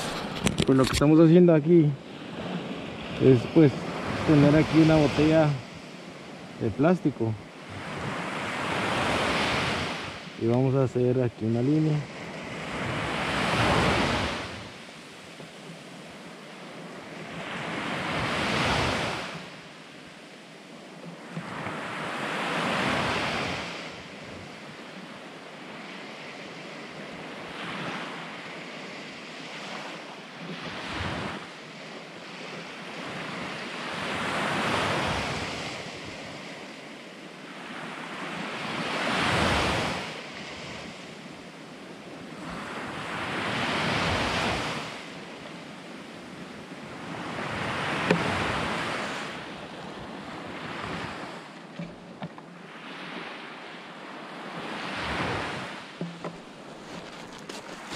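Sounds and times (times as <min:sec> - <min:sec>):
wind on microphone: 0:00.0 - 0:01.2
waves washing on pebble beach: 0:02.7 - 0:16.1, 0:41.9 - 0:51.5, 0:54.6 - 0:57.9.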